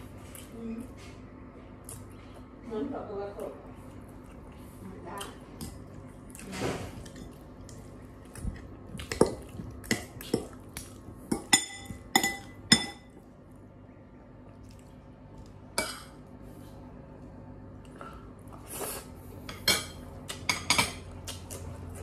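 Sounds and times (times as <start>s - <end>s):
cutlery clinking on ceramic bowl: 11.3s - 13.1s.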